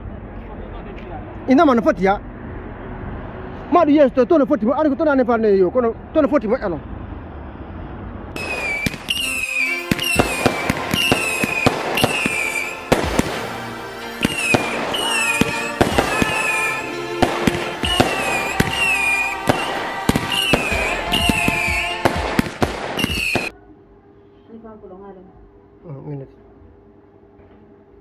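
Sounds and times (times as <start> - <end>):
falling firework whistles: 8.4 - 23.5
firework bangs and crackles: 8.4 - 23.5
music: 8.4 - 23.5.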